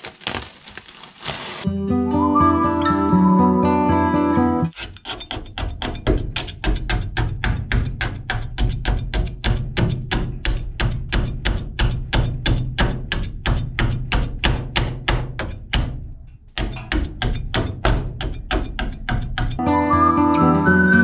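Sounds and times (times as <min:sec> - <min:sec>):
plucked melodic passage: 0:01.7 - 0:04.7, 0:19.6 - 0:21.0.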